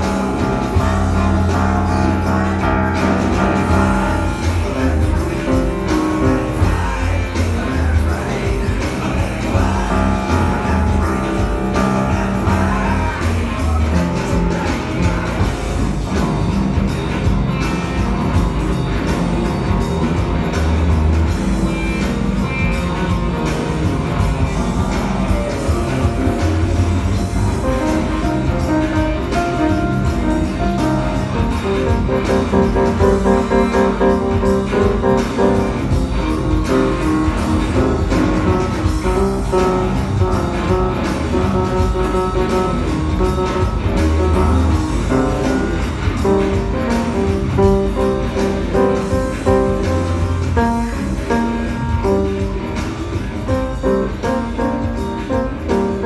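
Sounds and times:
upright piano playing: 0.0s - 56.0s.

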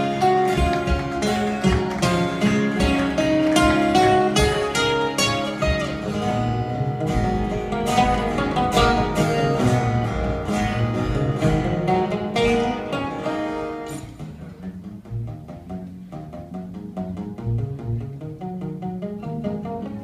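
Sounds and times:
acoustic guitar picked and strummed: 0.0s - 20.0s.

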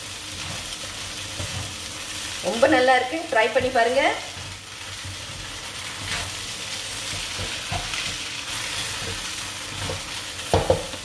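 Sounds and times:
noodles sizzling in a wok: 0.0s - 11.0s
spatula striking a pan: 3.5s - 11.0s.

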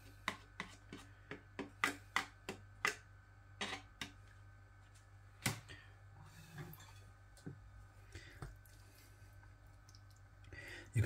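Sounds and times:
fork scraping plastic tray: 3.6s - 3.9s.

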